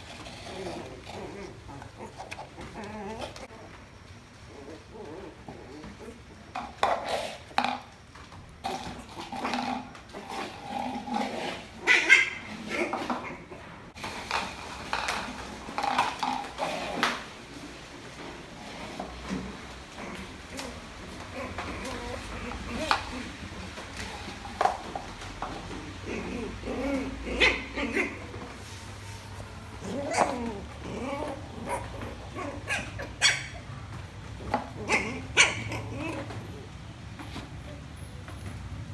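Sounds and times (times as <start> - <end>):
plastic tub clattering on floor: 5.9 - 11.8, 14.0 - 17.4, 18.1 - 27.2
puppy yapping barks: 11.8 - 13.0, 32.6 - 33.7, 34.9 - 36.0.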